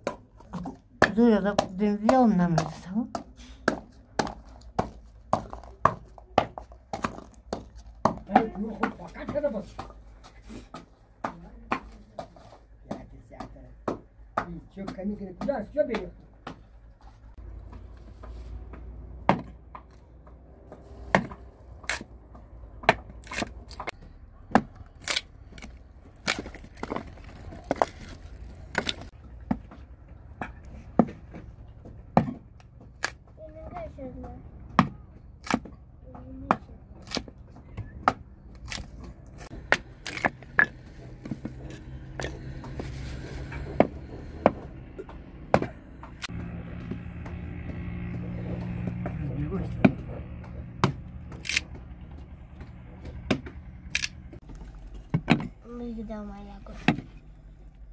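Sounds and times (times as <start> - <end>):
knife chopping on a board: 43.6 - 51.1.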